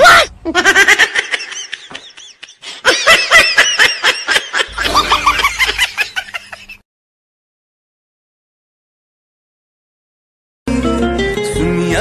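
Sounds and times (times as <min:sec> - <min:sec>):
high-pitched laughter: 0:00.1 - 0:06.8.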